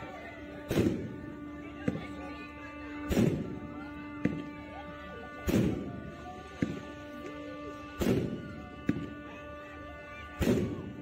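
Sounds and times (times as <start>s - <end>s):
music: 0.0s - 11.0s
small sharp firework cracks: 0.6s - 1.2s, 3.0s - 4.6s, 5.4s - 9.3s, 10.3s - 11.0s
firework booms: 0.7s - 1.1s, 8.0s - 9.0s.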